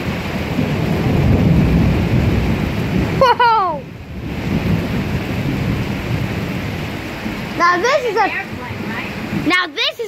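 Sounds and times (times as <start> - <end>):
steady rain: 0.0 - 10.0
thunder rumbling: 0.0 - 10.0
person exclaiming: 3.2 - 3.9.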